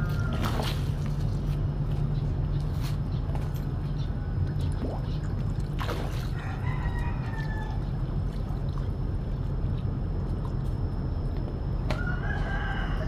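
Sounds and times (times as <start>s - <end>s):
rooster crowing: 0.0s - 0.6s, 6.3s - 8.0s, 11.9s - 13.0s
steady low rumble: 0.0s - 13.0s.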